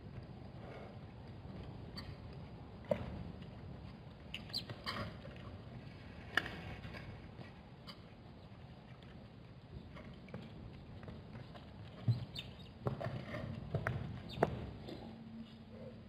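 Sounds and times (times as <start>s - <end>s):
hooves clicking on hard ground: 7.4s - 15.0s.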